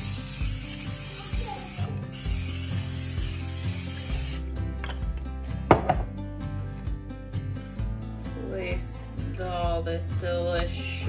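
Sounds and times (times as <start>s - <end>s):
aerosol spray hissing: 0.0s - 4.5s
quiet background music: 0.0s - 11.0s.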